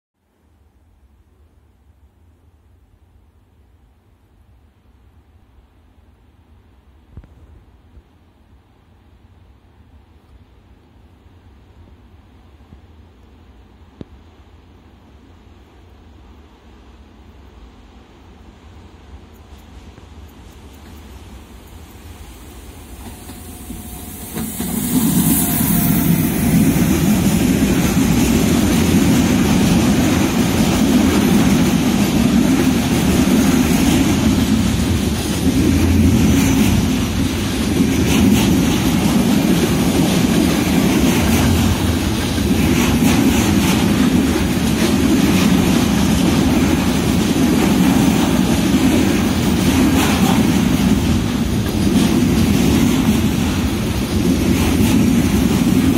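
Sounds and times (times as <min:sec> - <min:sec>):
electric locomotive passing: 0:15.4 - 0:55.9
train wheels rumbling on rails: 0:17.2 - 0:55.9.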